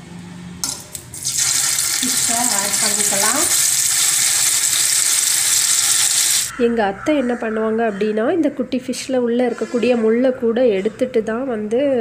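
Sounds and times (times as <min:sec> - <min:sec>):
fish sizzling in hot oil: 0:01.2 - 0:06.5.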